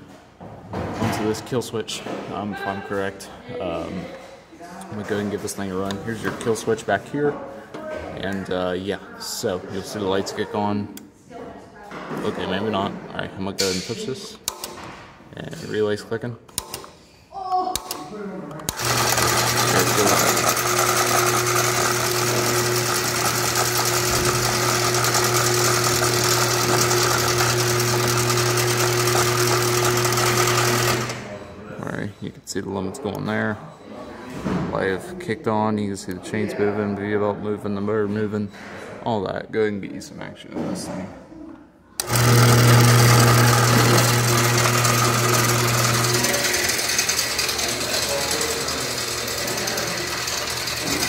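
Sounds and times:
garage door opener motor running: 0:18.7 - 0:31.5, 0:42.0 - 0:51.0.

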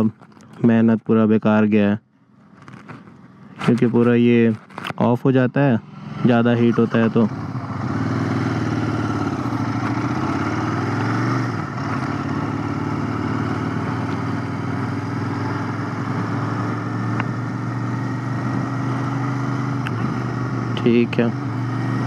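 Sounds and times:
motorcycle engine running: 0:05.7 - 0:22.0.

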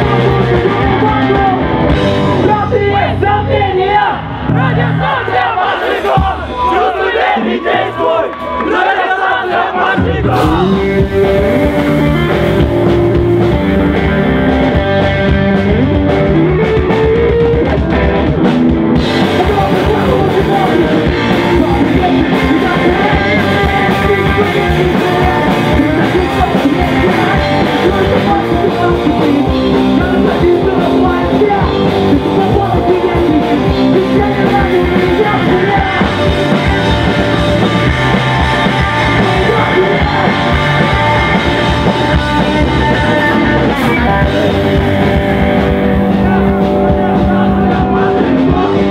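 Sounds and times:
person singing: 0:00.0 - 0:01.8, 0:09.8 - 0:14.9, 0:19.1 - 0:48.9
electric guitar: 0:00.0 - 0:05.1, 0:10.0 - 0:48.9
electric bass: 0:00.0 - 0:05.5, 0:10.0 - 0:48.9
drum kit: 0:00.0 - 0:48.9.

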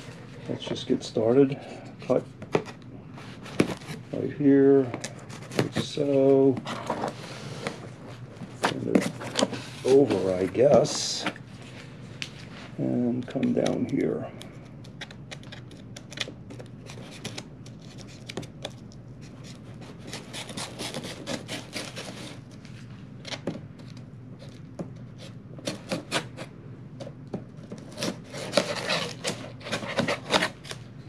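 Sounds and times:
knife scraping packing tape: 0:19.2 - 0:22.4, 0:25.2 - 0:26.5, 0:27.8 - 0:30.8.

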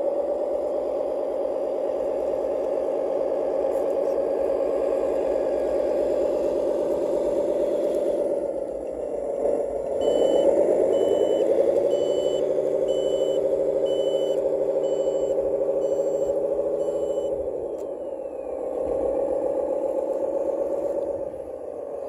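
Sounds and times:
diesel engine through speaker: 0:00.0 - 0:22.0
reversing beeper: 0:09.9 - 0:19.3.

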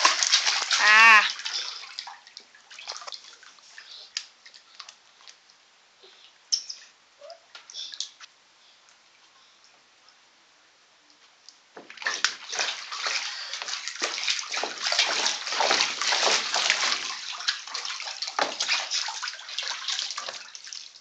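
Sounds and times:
water splashing in pool: 0:00.0 - 0:05.4, 0:11.8 - 0:21.0.

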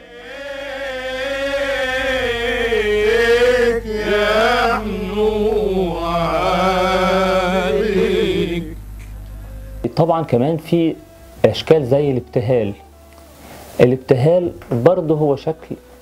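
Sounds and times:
men singing religious chant: 0:00.0 - 0:08.9.

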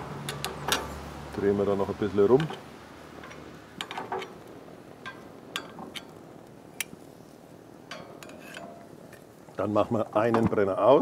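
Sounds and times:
faint steady hiss: 0:00.0 - 0:11.0
metal tongs clicking on grill grate: 0:00.2 - 0:00.9, 0:03.2 - 0:07.0, 0:07.8 - 0:09.2.

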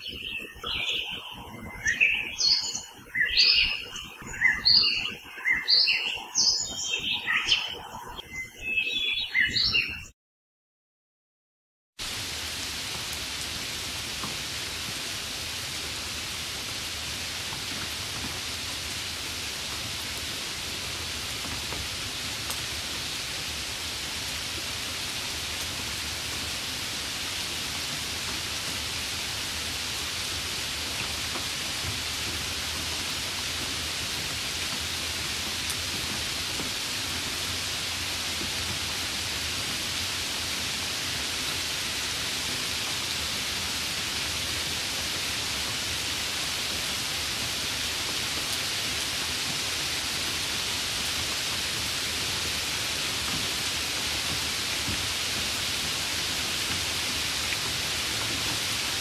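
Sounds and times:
steady rain hiss: 0:00.0 - 0:09.8, 0:12.0 - 0:59.0.

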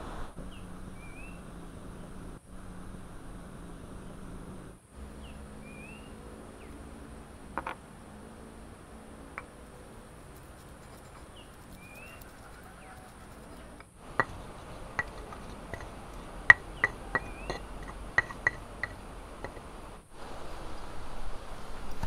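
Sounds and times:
faint outdoor background: 0:00.0 - 0:22.0
bird chirping: 0:00.4 - 0:01.5, 0:05.1 - 0:06.9, 0:10.4 - 0:19.6
utensils clinking against dishes: 0:13.0 - 0:19.6.

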